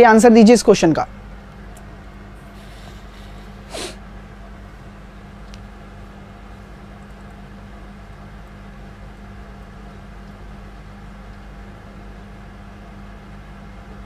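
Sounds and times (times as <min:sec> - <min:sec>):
short breathy noise: 0:02.5 - 0:04.0.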